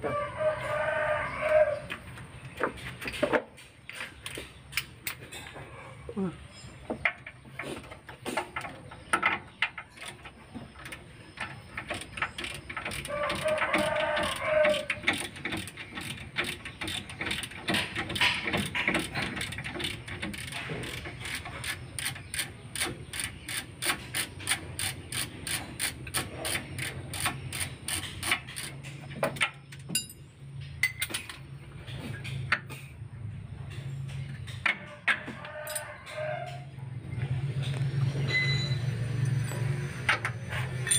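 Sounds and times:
ratchet wrench clicking: 11.8 - 28.8.

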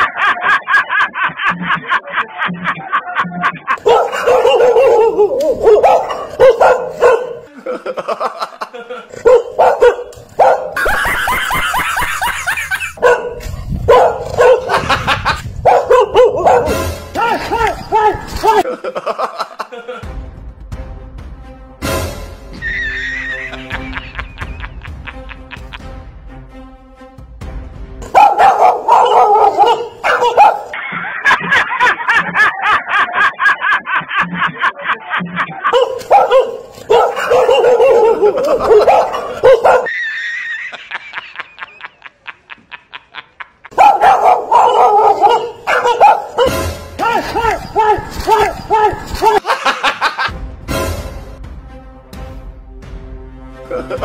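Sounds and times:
dog barking and yelping: 3.8 - 7.5, 9.2 - 12.1, 13.0 - 14.9, 15.6 - 16.8, 17.5 - 18.6, 28.1 - 30.8, 35.7 - 40.0, 43.7 - 46.6, 47.3 - 49.4.

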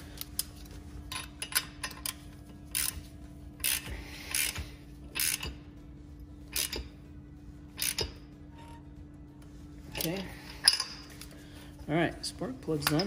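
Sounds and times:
socket ratchet clicking: 5.2 - 5.6, 6.5 - 6.9, 7.8 - 8.2.

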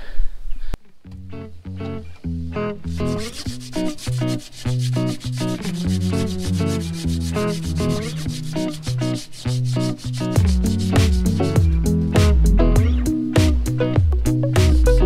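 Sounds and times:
background music with bass line: 1.1 - 15.0.

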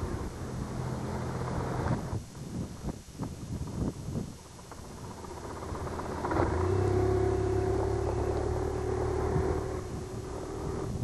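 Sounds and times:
motorcycle engine running: 3.6 - 11.0.

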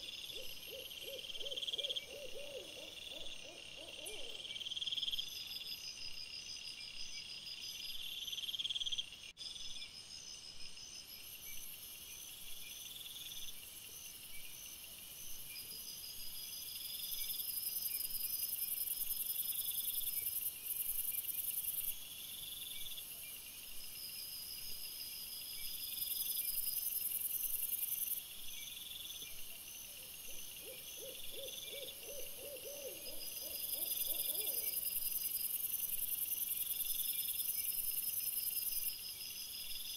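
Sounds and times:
short lower-pitched insect calls: 25.6 - 39.0.

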